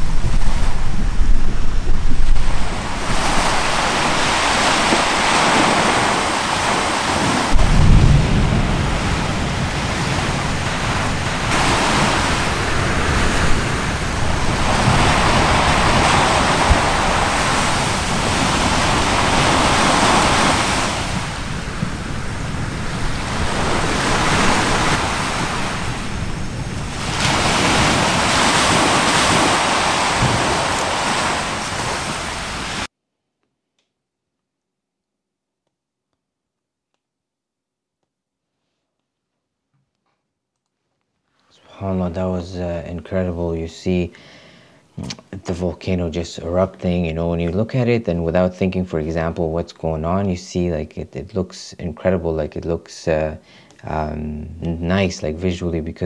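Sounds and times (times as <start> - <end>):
sea surf washing in: 0.0 - 32.9
wind buffeting microphone: 0.0 - 32.9
deep thud: 7.5 - 9.4.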